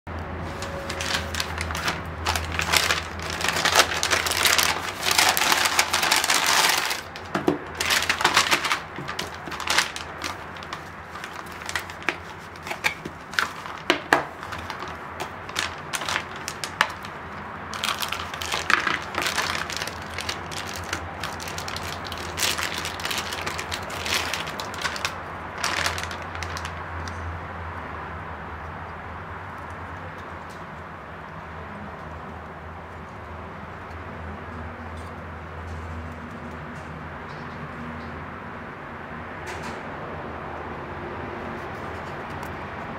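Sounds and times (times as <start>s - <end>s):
paper and foil crinkling: 0.4s - 27.3s.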